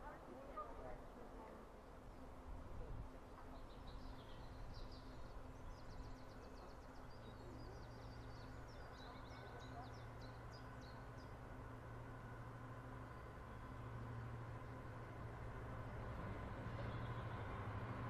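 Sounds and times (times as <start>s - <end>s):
diesel locomotive engine drone: 0.0s - 18.0s
songbird twittering trills: 3.3s - 11.4s.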